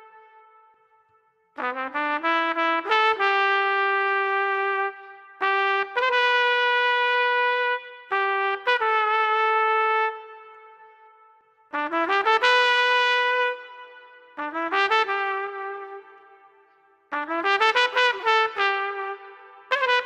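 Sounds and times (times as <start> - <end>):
solo trumpet slow melody: 0.0 - 20.0.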